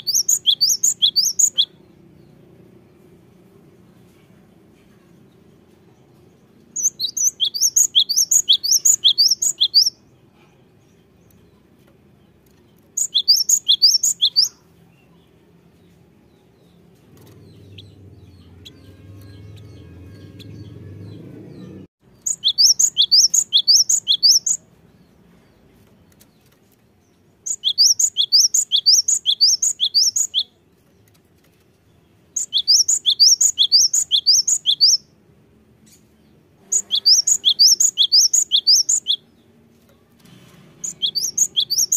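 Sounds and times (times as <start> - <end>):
bird singing rapid high notes: 0.0 - 2.0, 6.8 - 10.1, 12.9 - 14.7, 16.7 - 24.6, 27.4 - 30.6, 32.3 - 35.2, 36.6 - 39.4, 40.8 - 41.9
faint low rumble: 14.8 - 21.9.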